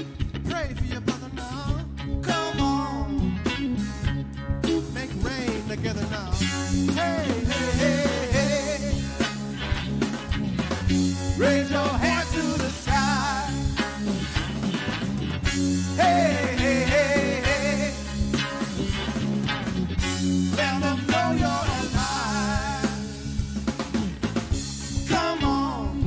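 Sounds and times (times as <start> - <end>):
man singing with vibrato: 0.0 - 3.4, 4.6 - 9.4, 11.3 - 13.9, 15.9 - 18.4, 20.5 - 23.4, 25.0 - 26.0
bass guitar: 0.0 - 26.0
drums: 0.0 - 26.0
electric guitar: 0.0 - 26.0.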